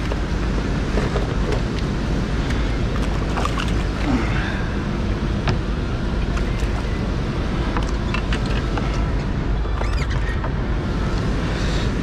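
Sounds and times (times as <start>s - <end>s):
loud rumbling noise: 0.0s - 12.0s.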